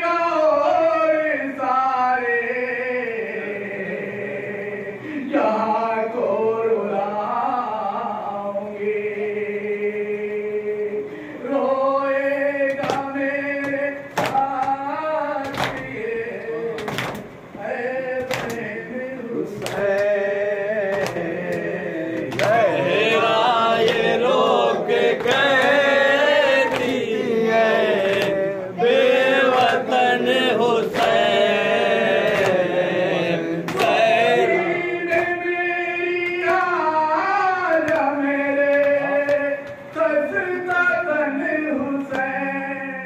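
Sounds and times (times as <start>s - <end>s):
man reciting into a microphone: 0.0s - 43.0s
group chanting along: 8.8s - 42.9s.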